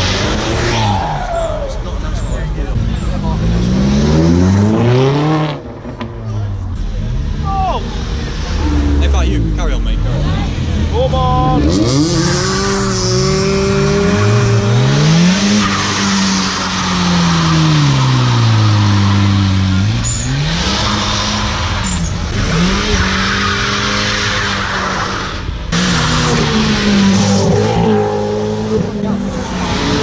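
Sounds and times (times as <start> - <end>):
cars revving and accelerating: 0.0 - 30.0
motorbike revving: 6.6 - 30.0.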